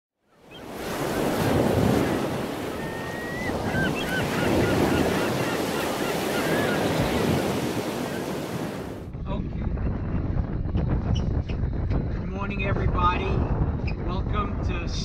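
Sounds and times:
ocean surf and waves: 0.3s - 9.1s
high chirping calls: 2.0s - 8.4s.

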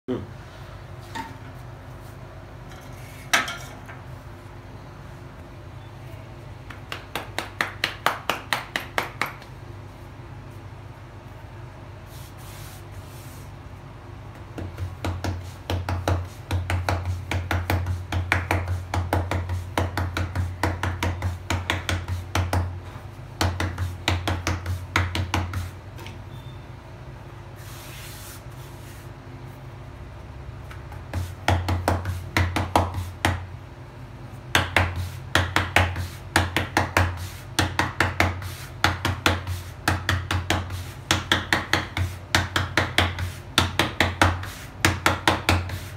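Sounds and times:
palms slapping dough: 6.6s - 9.6s, 14.3s - 26.2s, 30.6s - 33.6s, 34.4s - 45.9s.

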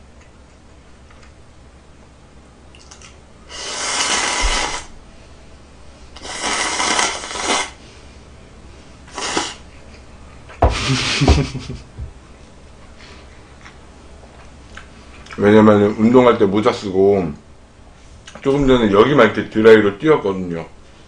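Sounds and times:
person slurping noodles: 3.5s - 4.9s, 6.2s - 7.8s, 9.1s - 9.6s.

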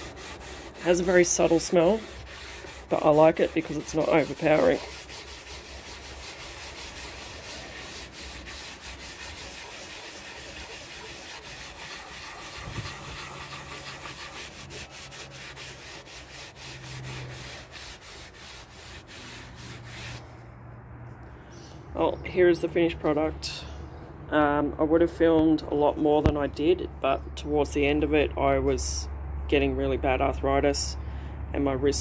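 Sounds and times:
cloth rag wiping wood: 0.0s - 20.2s.

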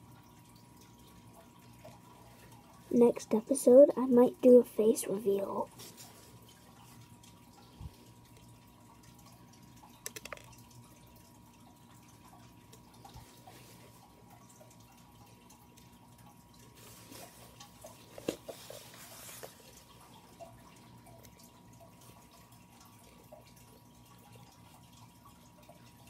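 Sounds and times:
plastic beads clicking on pegboard: 10.0s - 10.6s.

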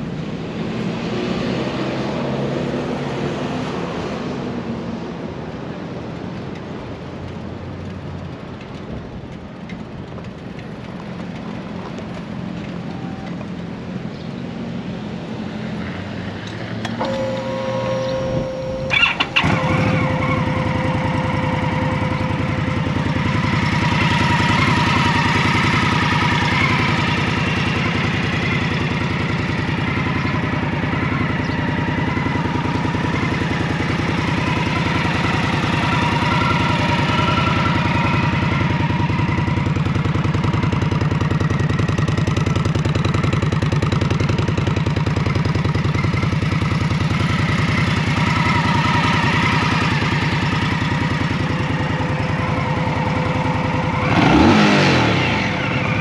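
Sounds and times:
motorcycle starter cranking: 16.8s - 22.8s
motorcycle engine idling: 16.9s - 56.0s.

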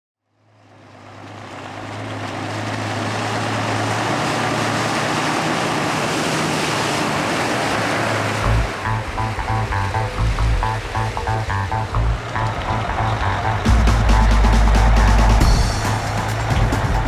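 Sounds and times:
diesel truck engine hum: 0.2s - 17.0s
tyres splashing through mud: 0.5s - 17.0s
music beat: 8.4s - 17.0s.

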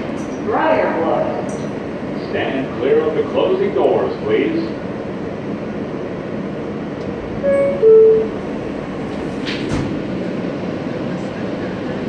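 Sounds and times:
subway car hum: 0.0s - 12.0s
two-tone door chime: 7.4s - 8.4s
doors sliding shut with thud: 9.1s - 10.1s.

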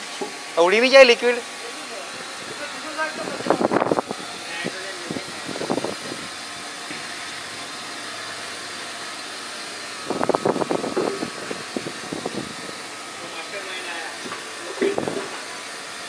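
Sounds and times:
liquid nitrogen boiling hiss: 0.0s - 16.0s.

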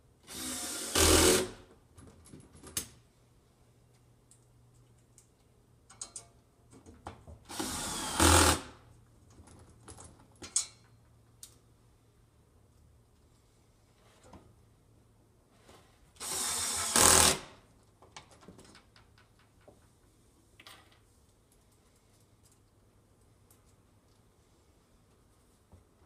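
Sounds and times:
cordless drill driving screws: 0.3s - 1.6s, 7.5s - 8.7s, 16.2s - 17.5s.

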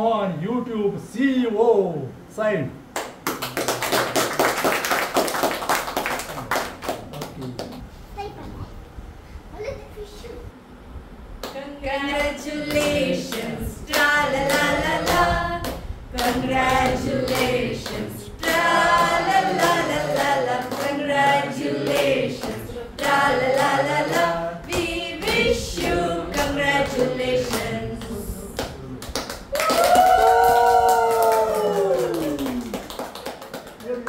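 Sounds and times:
adults and children singing: 11.5s - 28.9s.

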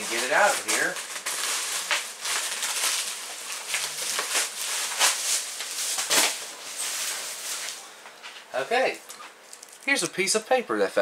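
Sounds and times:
packaging rustling and crackling: 0.0s - 7.8s, 9.1s - 10.0s.

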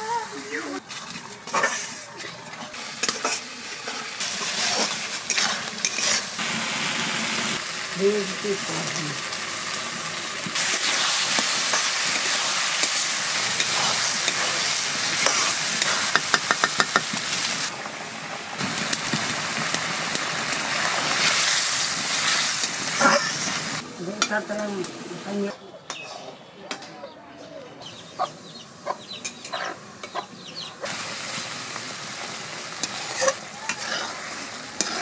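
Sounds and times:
curry sizzling in a pan: 0.0s - 25.5s, 28.8s - 35.0s
metal spatula stirring: 0.8s - 6.4s, 15.2s - 17.1s, 32.8s - 35.0s
spatula tapping against pan: 16.1s - 17.1s.

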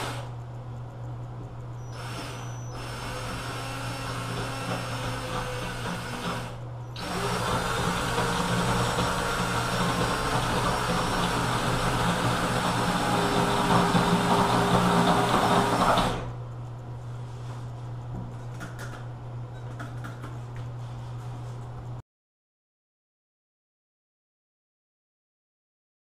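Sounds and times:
cordless drill boring tile: 0.0s - 0.3s, 1.9s - 16.3s.

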